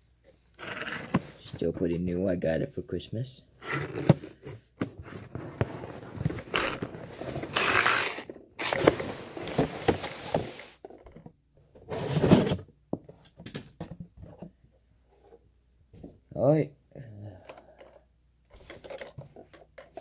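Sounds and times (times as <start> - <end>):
box packaging scraping and rustling: 3.6 - 10.8, 11.8 - 12.7.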